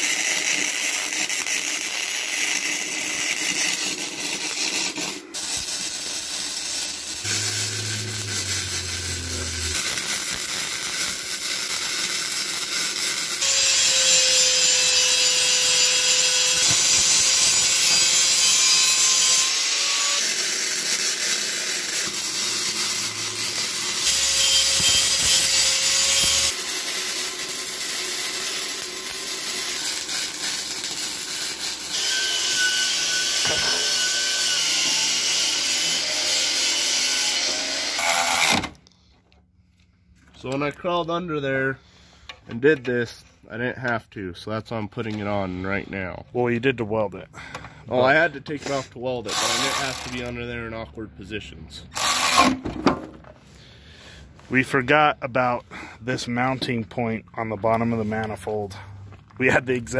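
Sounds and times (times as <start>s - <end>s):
angle grinder grinding metal: 0.0s - 38.6s, 48.6s - 50.3s, 52.0s - 52.6s.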